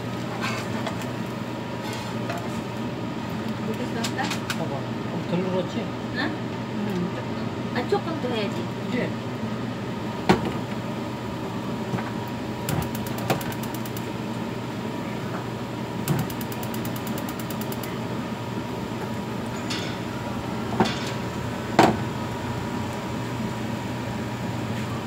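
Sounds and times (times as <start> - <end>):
steady stove hum and hiss: 0.0 - 25.0
rapid fine ticking: 16.1 - 17.9.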